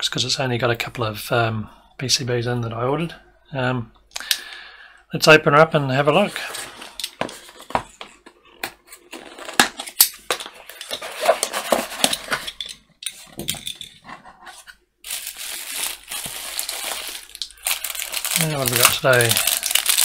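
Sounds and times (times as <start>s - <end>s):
bubble wrap crinkling: 15.0s - 20.0s.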